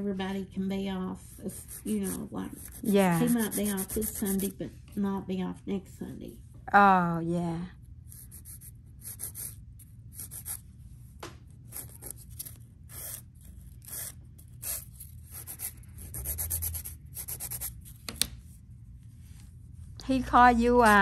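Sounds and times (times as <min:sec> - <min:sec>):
nail file rubbing fingernail: 0:01.5 - 0:04.5, 0:08.1 - 0:10.6, 0:11.7 - 0:18.0.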